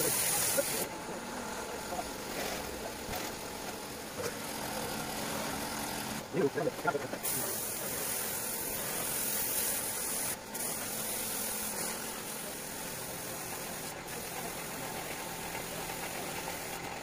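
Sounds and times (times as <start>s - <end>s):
spray gun hissing: 0.0s - 0.9s, 7.0s - 17.0s.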